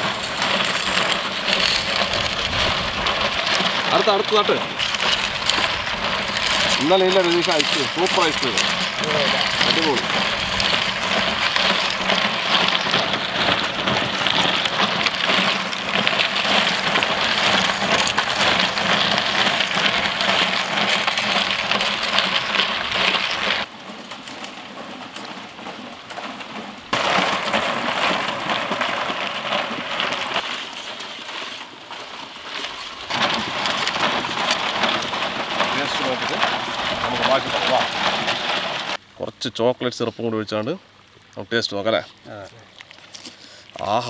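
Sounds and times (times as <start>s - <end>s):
metal scraper shaving ice cream: 0.0s - 39.0s.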